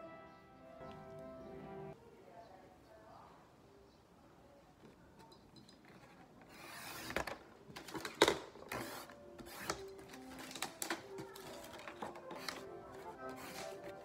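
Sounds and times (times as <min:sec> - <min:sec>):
paper trimmer scraping through paper: 0:08.7 - 0:10.6, 0:11.4 - 0:14.0.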